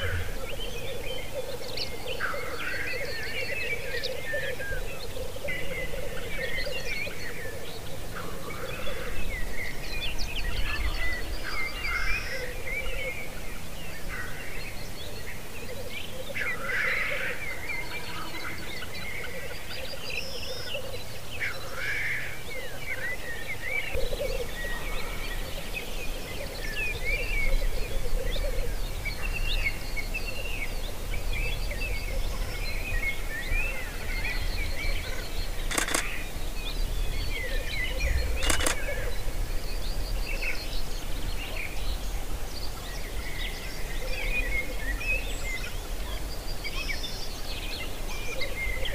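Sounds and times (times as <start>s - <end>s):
small birds chirping and trilling: 0.0s - 48.9s.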